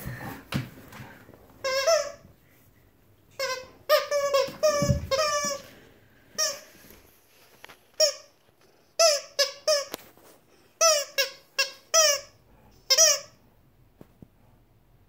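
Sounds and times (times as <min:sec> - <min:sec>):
dog toy squeaking: 0:01.6 - 0:02.3, 0:03.4 - 0:05.6, 0:08.0 - 0:08.3, 0:09.0 - 0:09.9, 0:10.8 - 0:12.3, 0:12.9 - 0:13.4.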